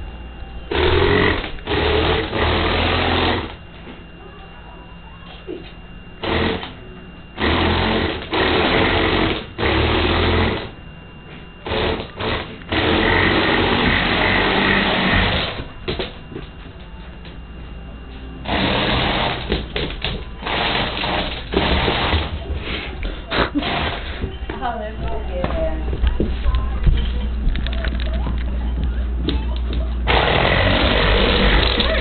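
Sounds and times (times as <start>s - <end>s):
toy motors whirring through gears: 30.1s - 32.0s.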